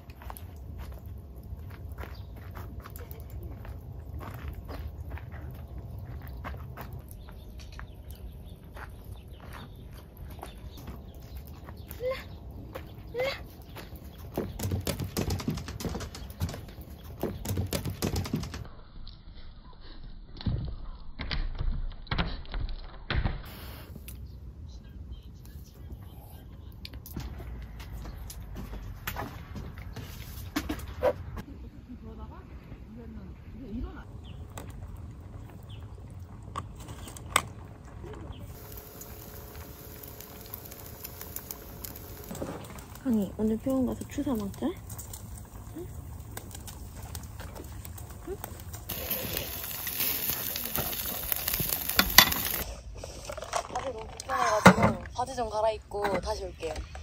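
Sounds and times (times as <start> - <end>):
low outdoor rumble: 0.0 - 14.9, 30.9 - 54.4
meat crackling on a grill: 34.1 - 52.7.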